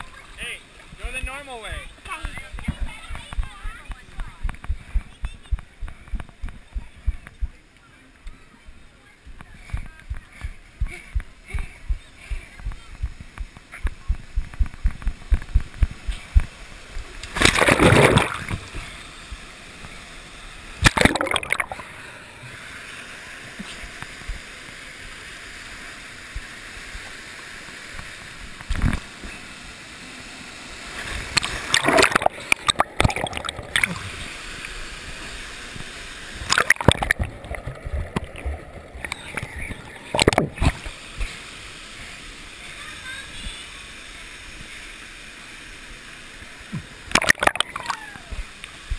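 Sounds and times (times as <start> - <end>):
water splashing: 9.2 - 24.8, 26.3 - 43.8, 46.6 - 48.9
water rushing down slide: 11.2 - 44.9, 46.5 - 48.9
plunge into pool: 17.2 - 18.9, 20.8 - 22.0, 31.0 - 34.2, 36.4 - 40.9, 46.7 - 48.1.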